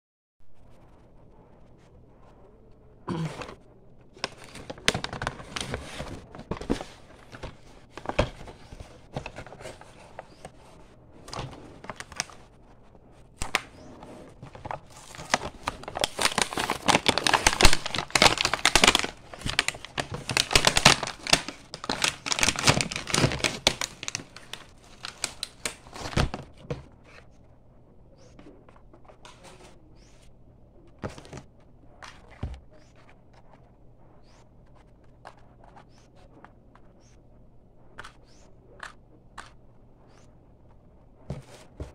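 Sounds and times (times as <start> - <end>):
plastic packaging crinkling and tearing: 4.1 - 10.5, 11.3 - 12.5, 14.4 - 27.3.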